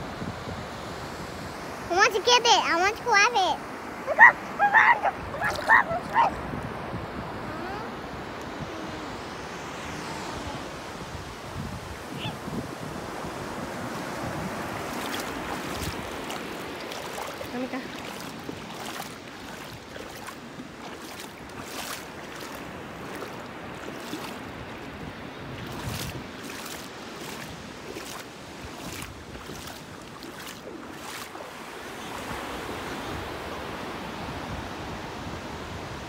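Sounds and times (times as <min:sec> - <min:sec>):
wind on microphone: 0:00.0 - 0:01.7, 0:04.0 - 0:31.5
ocean surf washing: 0:00.0 - 0:36.0
steps wading through water: 0:04.6 - 0:06.4, 0:14.4 - 0:31.7.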